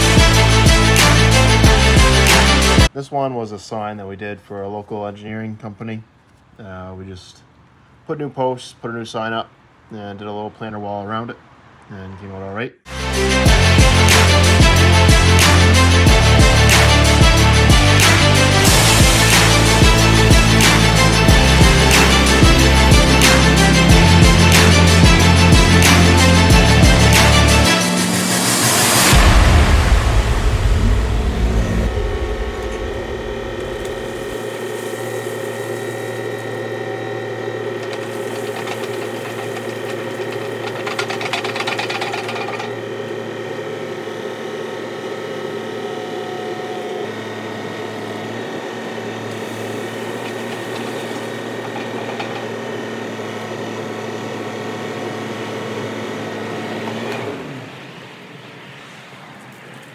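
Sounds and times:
backhoe engine humming: 13.4s - 58.7s
stone pouring from bucket: 37.8s - 42.7s.

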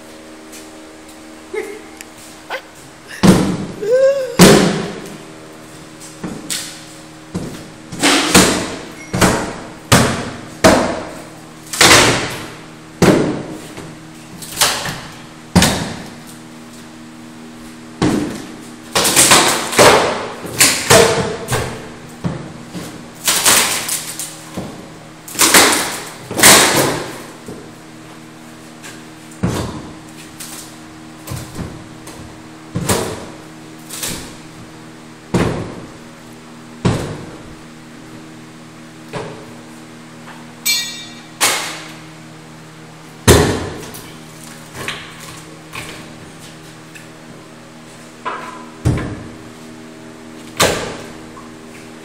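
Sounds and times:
sledgehammer strikes on wall: 4.4s - 5.0s, 7.3s - 11.2s, 11.8s - 13.5s, 14.6s - 16.0s, 36.8s - 37.3s, 43.2s - 43.9s.

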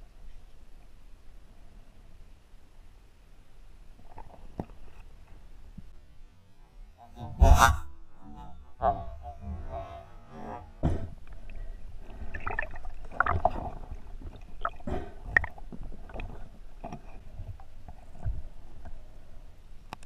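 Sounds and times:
underwater gurgling rumble: 7.1s - 19.7s.

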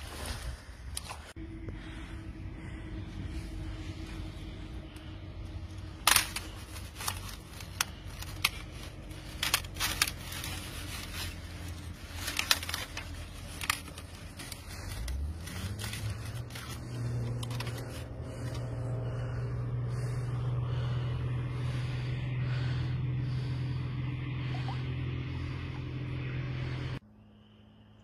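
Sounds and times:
steady low hum: 0.0s - 28.0s
thin ice cracking and snapping: 5.9s - 18.5s.

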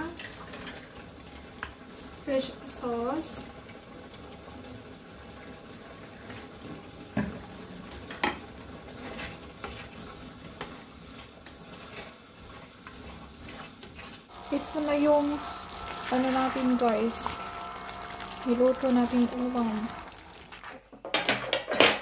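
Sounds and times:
stew bubbling in a pot: 0.0s - 20.9s
spatula scraping and tapping pan: 9.0s - 15.4s.

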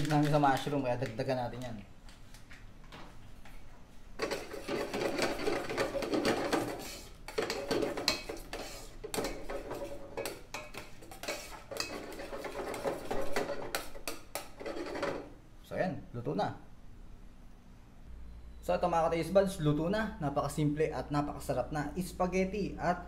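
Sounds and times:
metal spoon scraping a pot: 4.2s - 15.3s.

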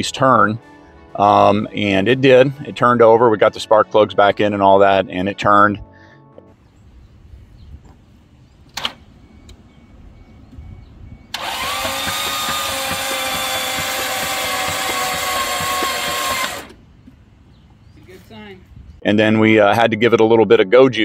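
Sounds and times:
engine cranking on starter motor: 8.6s - 16.8s
sharp click: 8.7s - 9.6s.

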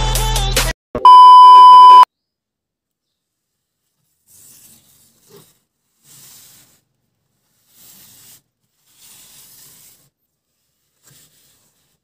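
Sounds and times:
cardboard scraping on tabletop: 3.8s - 12.0s.

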